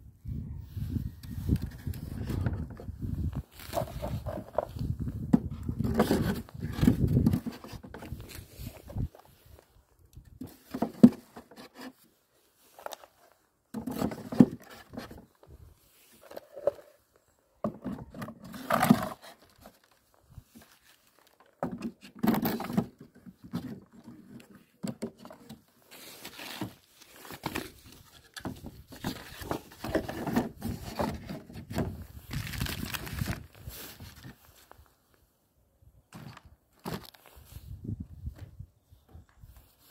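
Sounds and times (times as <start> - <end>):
knocks and scrapes of hive parts: 1.5 - 9.3, 10.3 - 12.0, 13.7 - 15.3, 20.5 - 32.6.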